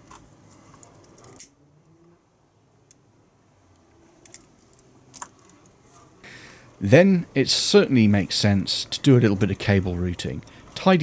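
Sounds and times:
small parts clicking: 0:00.0 - 0:02.0, 0:03.8 - 0:05.8.

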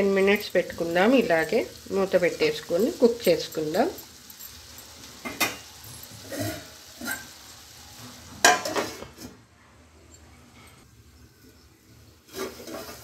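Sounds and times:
curry sizzling in a pot: 0:00.0 - 0:09.4, 0:10.8 - 0:13.0
metal plate clanking on pot: 0:08.4 - 0:09.3.

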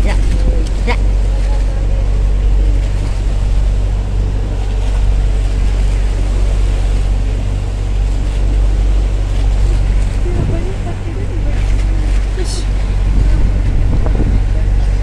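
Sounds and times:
boat engine droning: 0:00.0 - 0:15.0
water rushing past hull: 0:00.0 - 0:15.0
wind rushing: 0:10.0 - 0:14.6.

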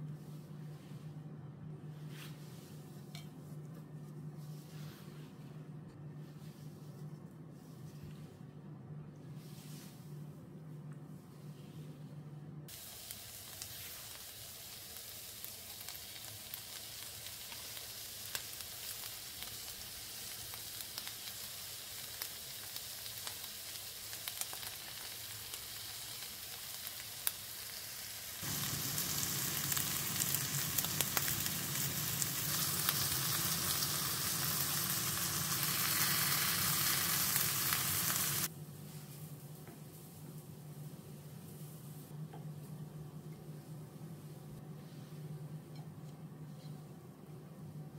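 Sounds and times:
burgers sizzling in grill pan: 0:12.7 - 0:38.5.

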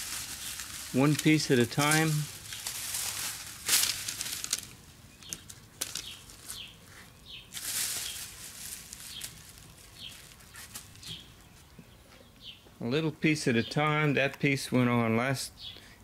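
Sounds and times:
plastic film rustling and crinkling: 0:00.0 - 0:11.3.

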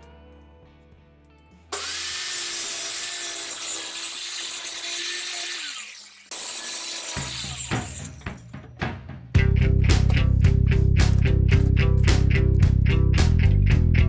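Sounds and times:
circular saw cutting wood: 0:01.7 - 0:08.2.

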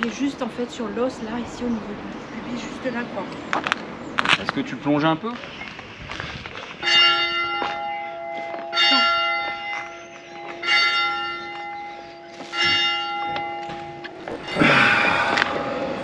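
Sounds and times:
church bell tolling: 0:06.8 - 0:16.0.

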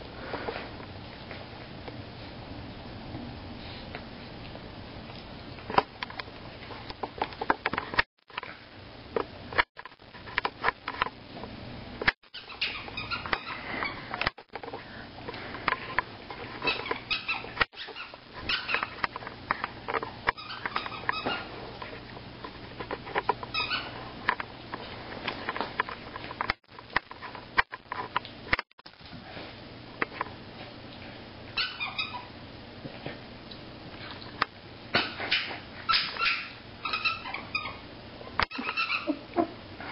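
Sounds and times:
toy squeaks: 0:38.5 - 0:39.2.

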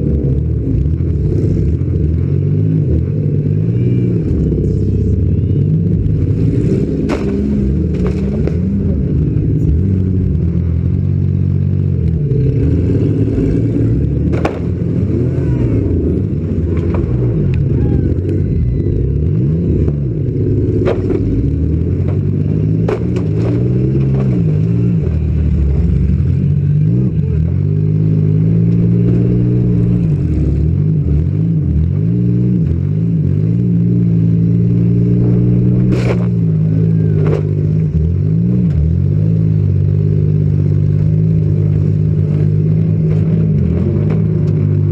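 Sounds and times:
car engine revving: 0:00.0 - 0:44.9
bangs and clatter from car: 0:14.3 - 0:14.8, 0:20.8 - 0:21.3, 0:22.0 - 0:24.3.

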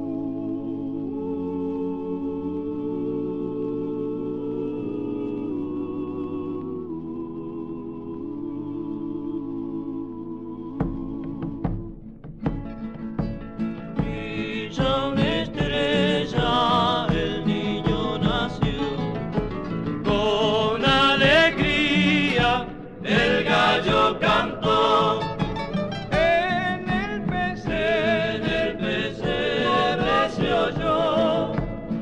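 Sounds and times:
voices singing in harmony: 0:00.0 - 0:12.3, 0:13.8 - 0:32.0
guitar accompaniment: 0:10.8 - 0:32.0.

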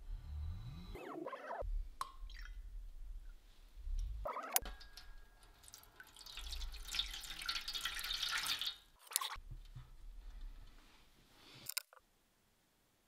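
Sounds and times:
liquid pouring into metal tray: 0:04.9 - 0:09.3.

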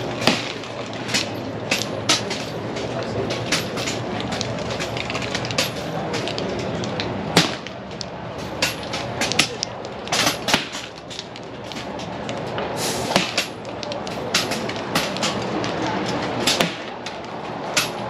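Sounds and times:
steady background rush: 0:00.0 - 0:18.0
air rifles firing sharp cracks: 0:07.3 - 0:07.8, 0:08.6 - 0:11.0, 0:13.0 - 0:13.6, 0:16.4 - 0:17.0.

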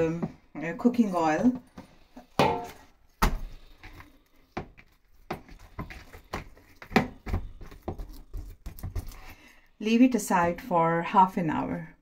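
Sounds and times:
hand kneading dough: 0:02.8 - 0:10.6.

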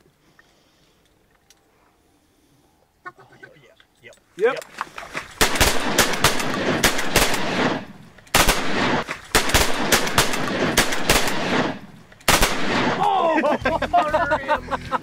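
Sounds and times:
shotguns firing: 0:05.4 - 0:13.1.

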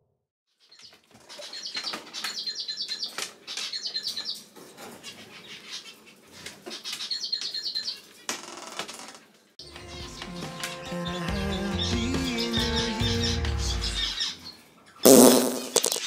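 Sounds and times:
bird chirping: 0:00.6 - 0:06.1, 0:06.7 - 0:08.1.

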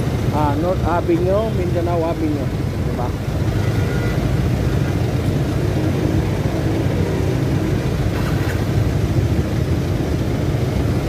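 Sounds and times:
road traffic: 0:00.0 - 0:11.0
vehicle engine rumble: 0:00.0 - 0:11.0.

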